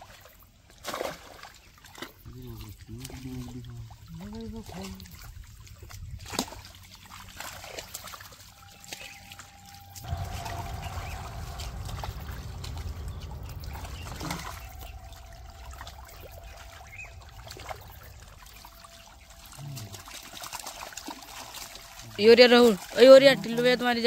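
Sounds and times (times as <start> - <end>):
water trickling and splashing: 0.0 - 24.0
low rushing noise: 9.3 - 22.2.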